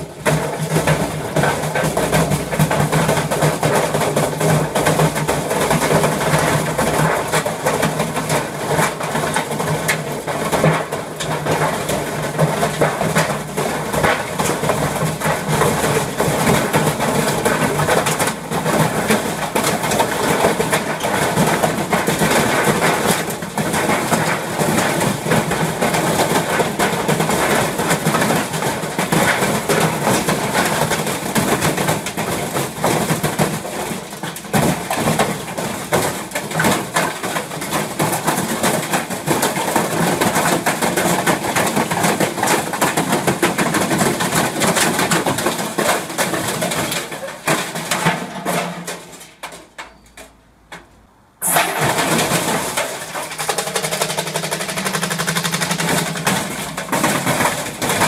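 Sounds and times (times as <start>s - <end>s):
washing machine drum motor: 51.4s - 58.0s.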